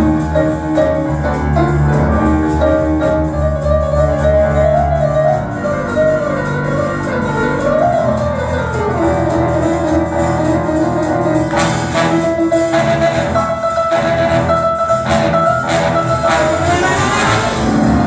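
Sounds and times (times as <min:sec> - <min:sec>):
upright double bass: 0:00.0 - 0:18.0
trombone: 0:04.1 - 0:18.0
saxophones: 0:05.4 - 0:18.0.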